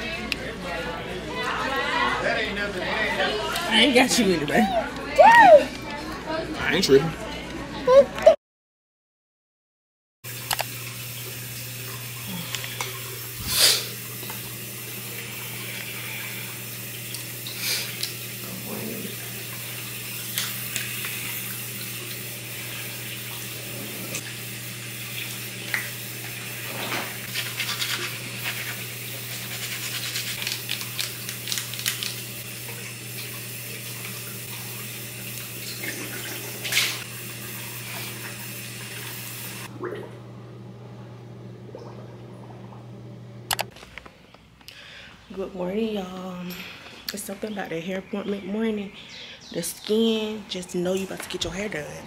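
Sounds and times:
tap water running: 10.2 - 43.8, 49.7 - 52.0.

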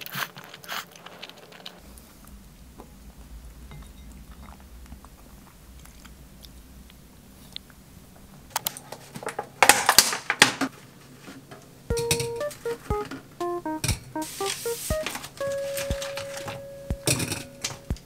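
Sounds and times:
light music: 11.9 - 18.0.

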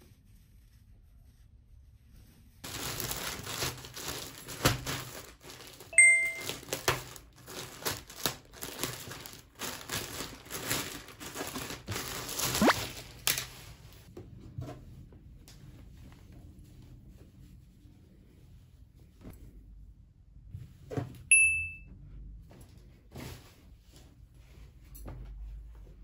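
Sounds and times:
plastic bag crinkling and rustling: 2.6 - 14.1
short bright chime: 6.0 - 6.6, 21.3 - 21.8.

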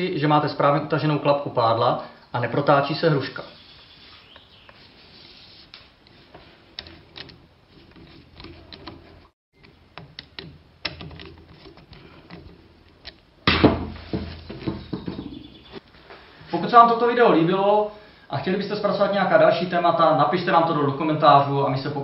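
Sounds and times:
rubbing and knocking: 4.1 - 9.3, 13.6 - 15.8
screwdriver clicks and scrapes: 6.8 - 9.2.

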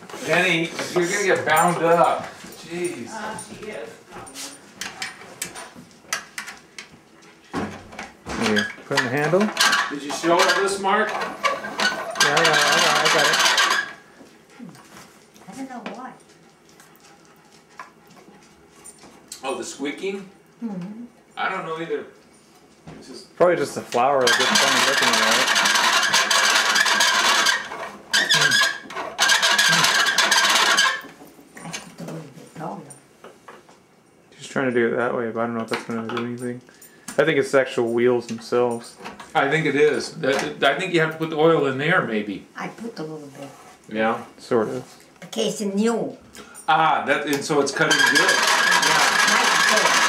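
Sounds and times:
pasta machine clicks and knocks: 8.9 - 13.9, 24.3 - 31.0, 47.8 - 50.0.

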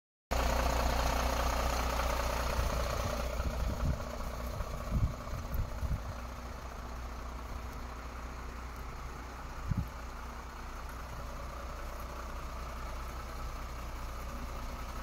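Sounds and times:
diesel engine idling: 0.3 - 15.0
dull low thumps: 2.9 - 10.2.

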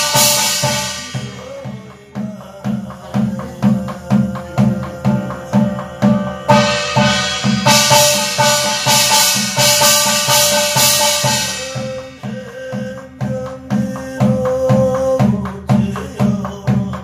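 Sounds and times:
barrel drum beating: 0.0 - 17.0
person chanting: 0.0 - 17.0
bright sustained shimmer: 4.9 - 12.7.

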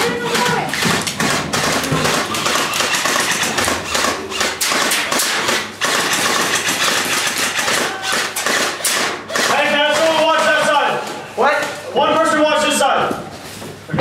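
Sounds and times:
airsoft rifles firing: 0.3 - 10.8.

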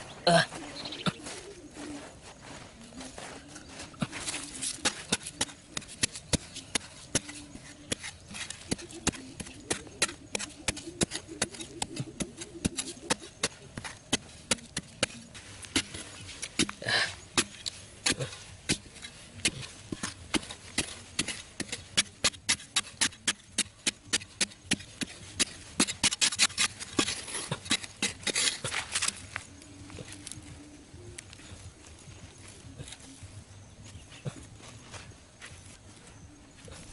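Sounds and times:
digging tool chopping soil: 4.0 - 29.4.

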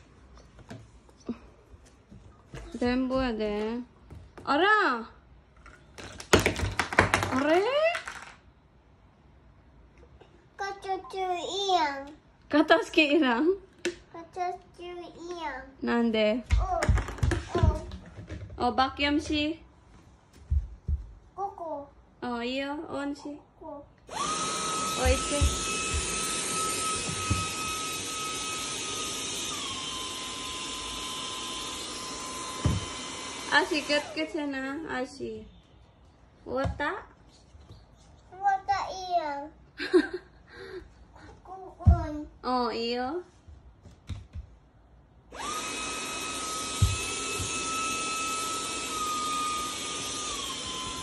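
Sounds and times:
vacuum cleaner motor whine: 24.1 - 34.6, 45.3 - 51.0.

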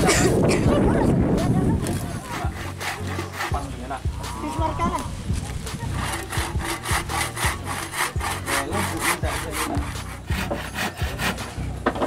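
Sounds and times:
hand saw cutting wood: 1.9 - 4.0, 5.6 - 12.0.

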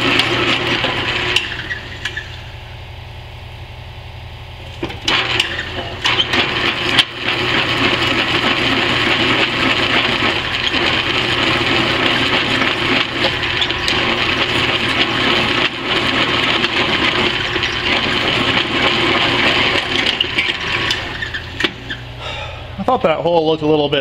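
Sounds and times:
drill boring through steel: 0.0 - 2.5, 5.1 - 22.1
drill press motor hum: 0.0 - 22.9.

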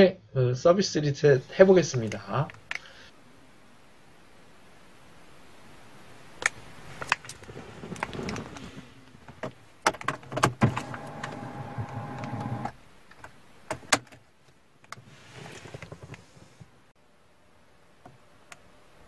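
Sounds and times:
handling noise: 6.5 - 16.8
ignition key clicks: 9.9 - 12.7
car electrics whirring: 10.4 - 12.8.

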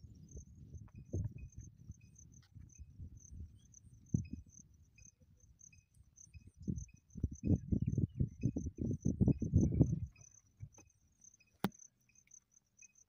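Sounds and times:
wind buffeting microphone: 0.0 - 5.4, 6.3 - 10.8
insects chirping: 0.0 - 13.0.

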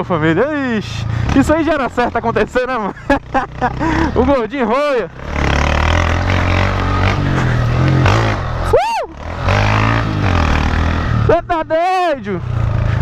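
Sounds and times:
motorcycle engine running: 0.0 - 13.0
person shouting: 8.6 - 9.2.

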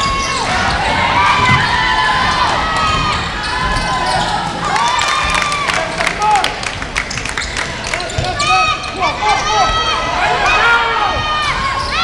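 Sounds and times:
shoes squeaking on court floor: 0.0 - 4.7, 7.1 - 9.2.

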